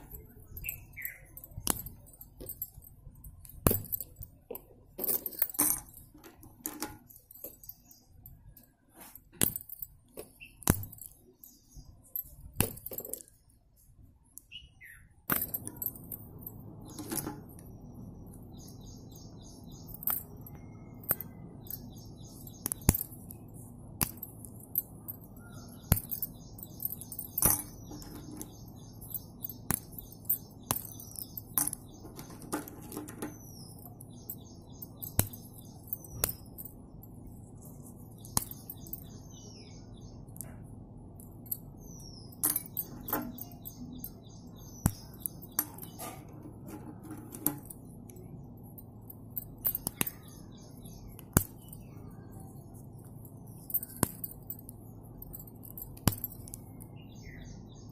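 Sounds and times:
pencils snapping and clinking in glass: 0.0s - 8.7s, 18.6s - 39.7s, 41.2s - 57.4s
birds chirping: 0.0s - 57.9s.

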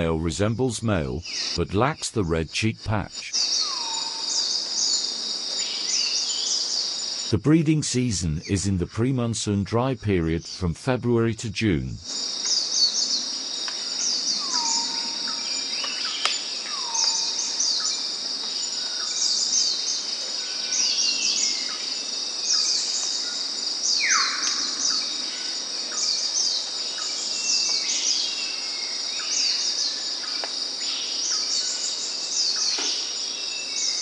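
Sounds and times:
birds chirping: 0.0s - 2.0s
high insect drone: 3.1s - 7.4s, 12.0s - 34.0s.

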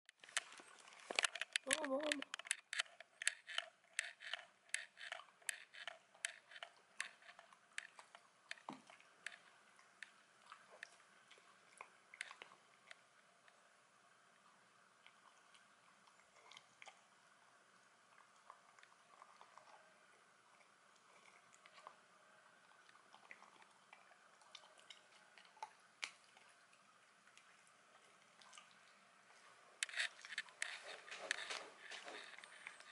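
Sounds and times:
dog crunching food: 0.2s - 13.0s, 29.8s - 32.9s.

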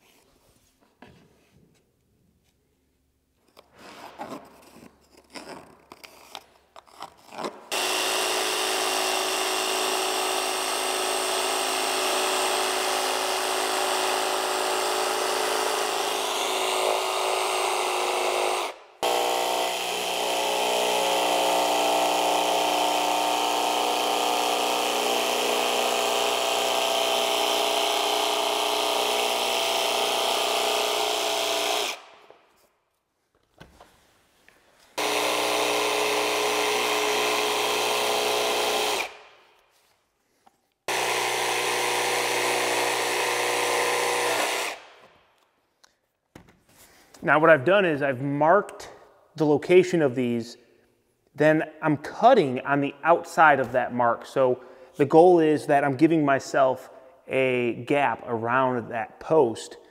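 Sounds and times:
jigsaw cutting with whine: 7.3s - 32.3s, 35.0s - 39.3s, 40.9s - 45.1s.

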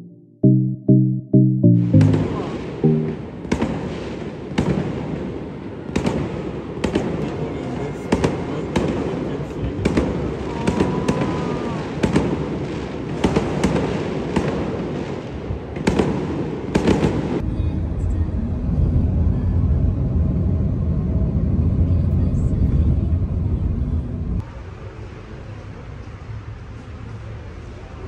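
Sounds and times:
fireworks bangs and pops: 3.4s - 7.4s, 8.1s - 17.4s
firecracker crackle: 8.1s - 17.4s.

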